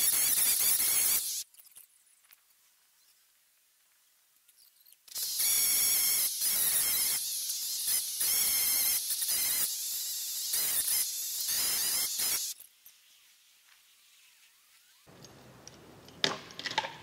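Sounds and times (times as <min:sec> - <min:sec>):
chainsaw cutting: 0:05.2 - 0:12.6.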